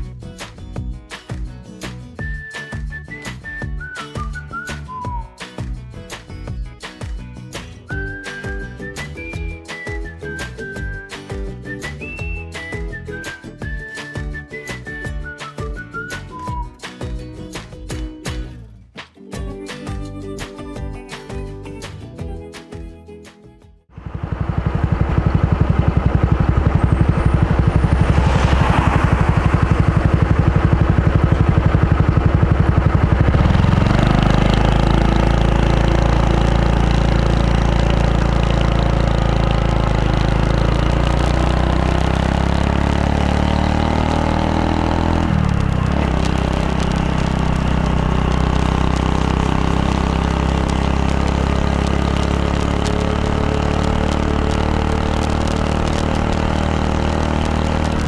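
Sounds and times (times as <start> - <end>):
motorcycle engine: 23.9 - 58.0.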